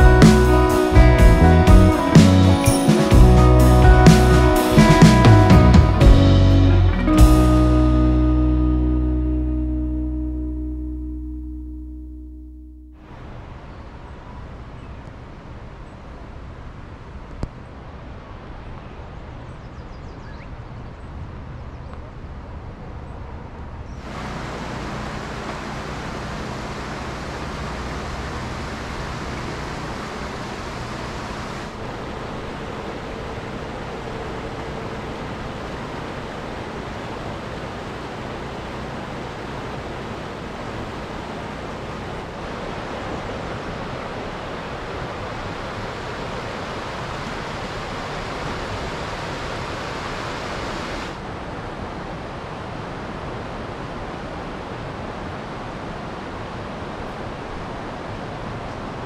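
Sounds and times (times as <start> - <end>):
river and waterfall rushing: 0.0 - 9.1, 23.9 - 59.0
faint low hum: 6.7 - 52.4.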